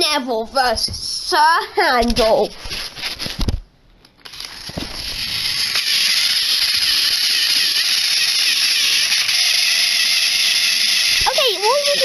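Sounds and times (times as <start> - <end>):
toy train motors whirring: 4.2 - 12.0.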